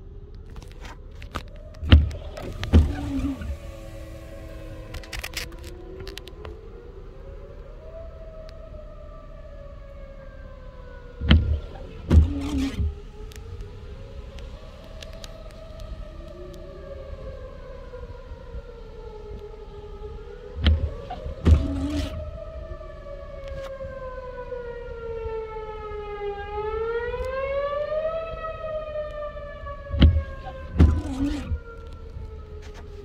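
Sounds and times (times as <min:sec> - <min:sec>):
warning siren wailing: 0:00.0 - 0:33.0
windshield wipers thumping: 0:00.5 - 0:06.6, 0:11.1 - 0:16.0, 0:20.0 - 0:22.5, 0:29.6 - 0:33.0.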